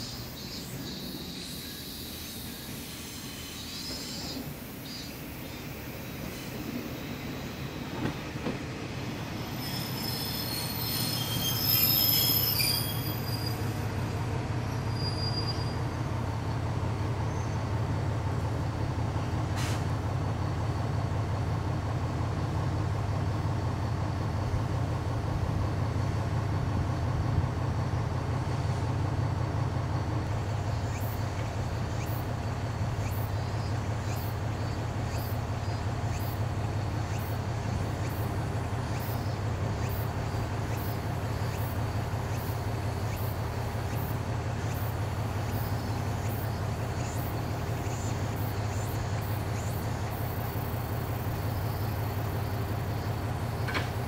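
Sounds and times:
train wheels squealing: 0.0 - 16.1.

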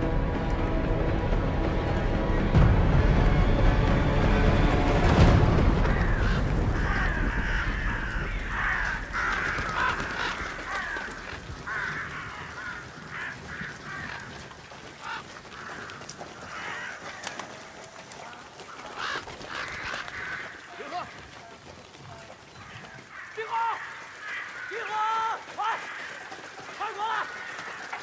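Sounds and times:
crows cawing: 5.6 - 28.0.

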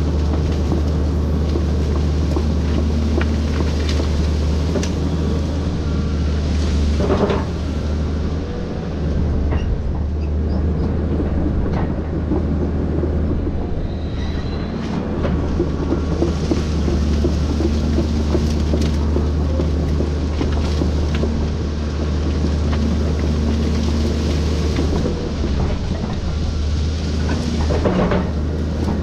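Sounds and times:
knocks and cracks of branches: 0.0 - 5.1, 15.5 - 25.2
excavator diesel engine drone: 0.0 - 29.0
brief squeal: 13.8 - 14.8.

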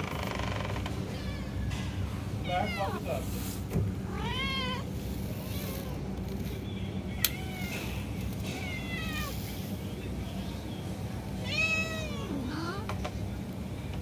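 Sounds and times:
cats meowing: 0.9 - 1.8, 2.4 - 3.2, 4.0 - 6.2, 7.2 - 9.6, 11.4 - 12.9.

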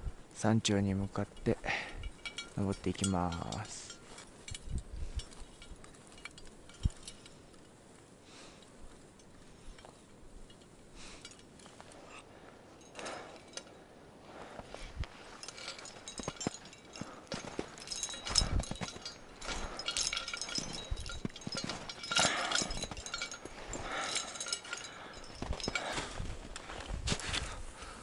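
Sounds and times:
climbing hardware clinking: 0.7 - 7.8, 8.5 - 28.0
footsteps in snow: 14.2 - 28.0.

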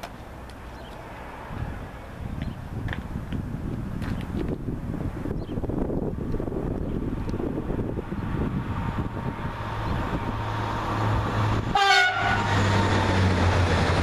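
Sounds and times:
train passing: 0.0 - 3.6, 6.8 - 14.0
train horn blast: 11.7 - 13.2.

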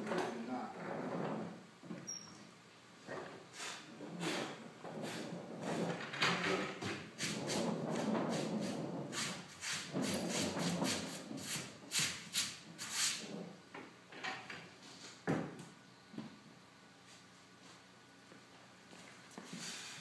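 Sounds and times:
wooden lid rubbing and scraping: 3.1 - 13.6.

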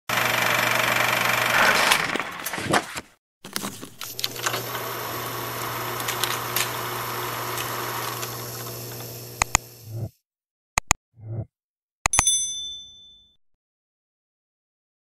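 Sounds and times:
film projector whirring: 0.1 - 2.6, 3.6 - 9.8
sharp clicks: 9.4 - 9.6, 10.8 - 11.0.

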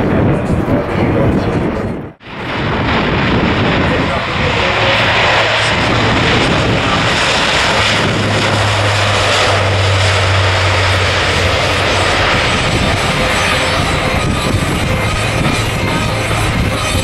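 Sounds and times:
turboprop aircraft engines droning: 0.0 - 17.0.

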